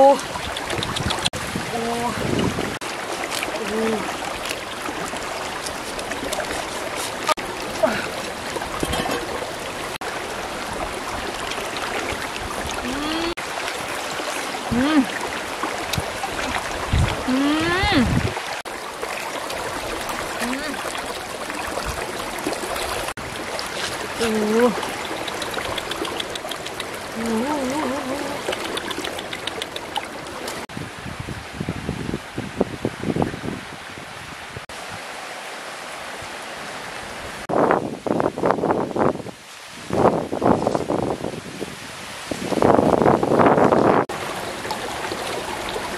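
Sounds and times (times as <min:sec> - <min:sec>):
rocky stream flowing: 0:00.0 - 0:30.8, 0:39.9 - 0:45.9.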